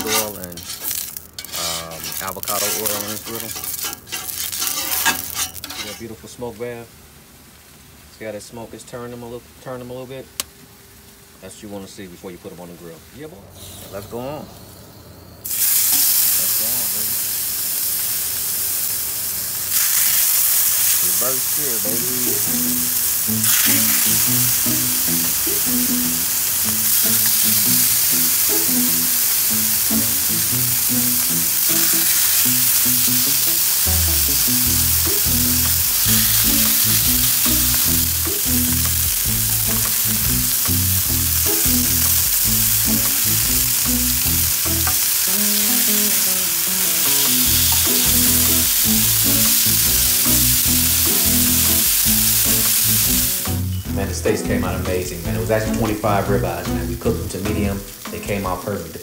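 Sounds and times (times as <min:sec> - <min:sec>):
steaks sizzling on a griddle: 0:00.0 - 0:06.0, 0:15.4 - 0:53.8
background music with bass: 0:21.3 - 0:59.0.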